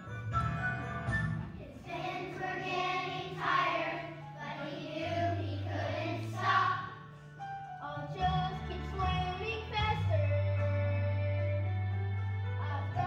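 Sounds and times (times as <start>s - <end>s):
instrumental backing music: 0.0s - 13.0s
children's choir singing: 0.7s - 7.2s, 12.6s - 13.0s.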